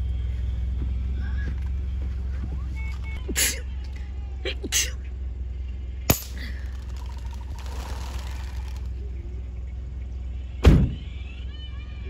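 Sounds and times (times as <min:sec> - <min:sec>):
air rifle shot crack: 0:06.1 - 0:07.0.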